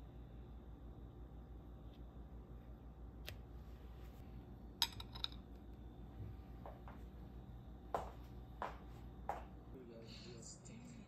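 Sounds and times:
steady low hum: 0.0s - 11.0s
tableware clinking: 4.8s - 5.5s.

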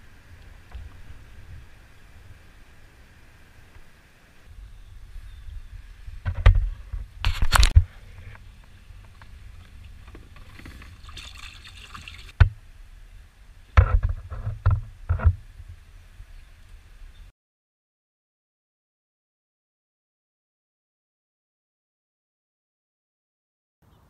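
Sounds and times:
water sloshing and trickling: 7.6s - 12.4s.

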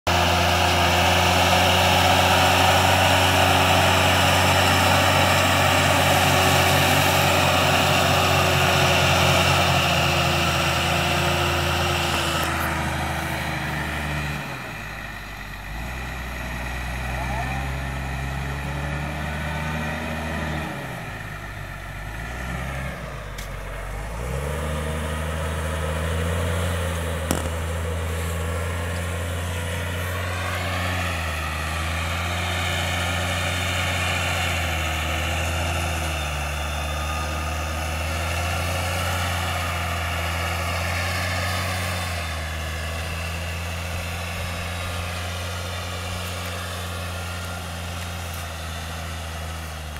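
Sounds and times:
tractor diesel engine under load: 0.0s - 49.9s.

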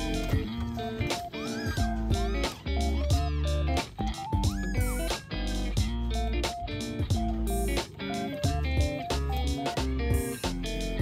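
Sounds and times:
kitten mewing: 0.0s - 5.8s
guitar music: 0.0s - 11.0s.

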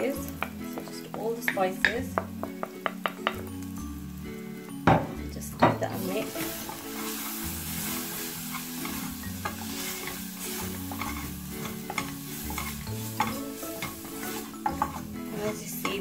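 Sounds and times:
frying sizzle: 0.0s - 16.0s
wooden spoon scraping a pan: 5.9s - 16.0s.

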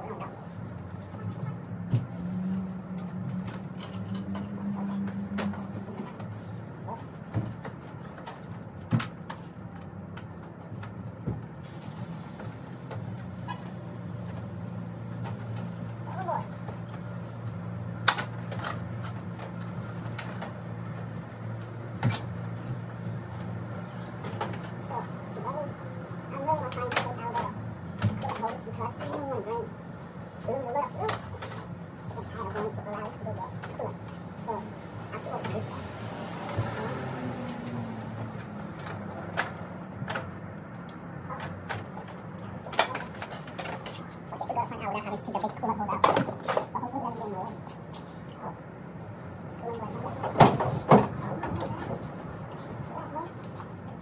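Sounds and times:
hand tools clicking and knocking: 38.1s - 44.5s.

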